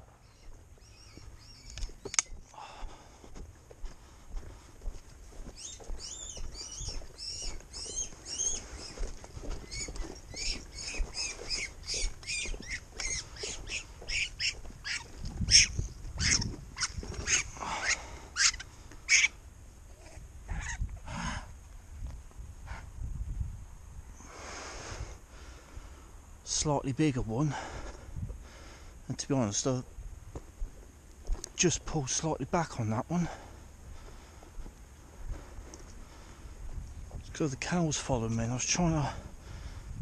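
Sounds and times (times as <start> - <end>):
bird chirping: 0.0 - 2.4, 5.5 - 19.3.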